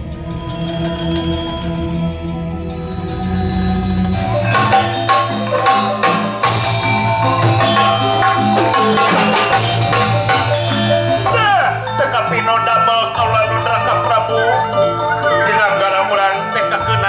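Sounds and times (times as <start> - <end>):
gamelan music: 0.0 - 17.0.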